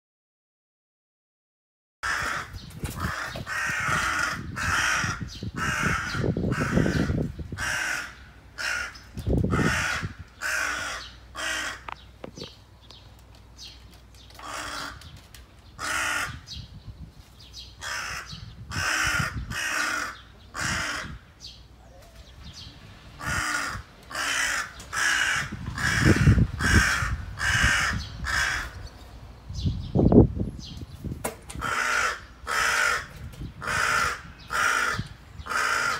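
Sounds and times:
crow cawing: 2.0 - 12.0, 14.4 - 15.0, 15.8 - 16.5, 17.8 - 21.3, 23.2 - 28.8, 31.6 - 35.9.

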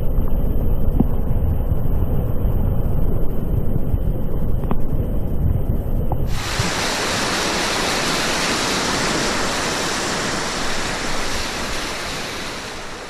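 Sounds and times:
whitewater rushing: 6.3 - 13.0.

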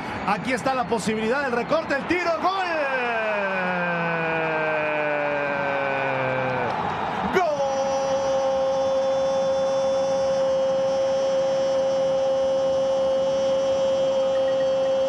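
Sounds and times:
commentator shouting goal cry: 1.3 - 13.6.

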